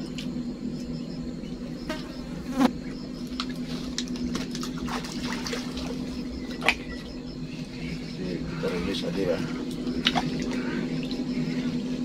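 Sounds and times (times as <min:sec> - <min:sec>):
steady low hum: 0:00.0 - 0:12.0
small water splashes and drips: 0:03.4 - 0:07.1, 0:09.7 - 0:11.2.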